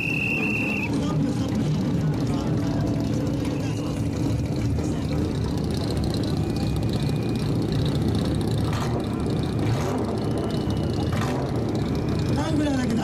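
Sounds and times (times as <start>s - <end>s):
car exhaust deep rumble: 0.0s - 13.0s.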